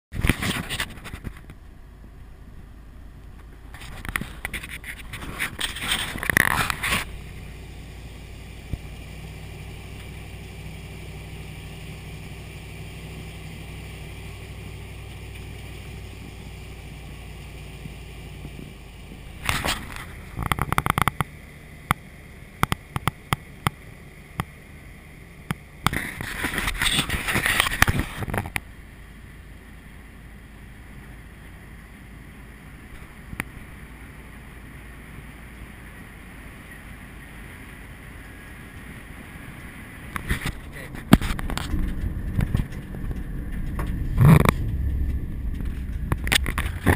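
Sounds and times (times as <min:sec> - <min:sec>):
truck engine humming: 0:00.1 - 0:46.9
wind buffeting microphone: 0:39.4 - 0:46.9
knocks and rattles: 0:40.2 - 0:46.9.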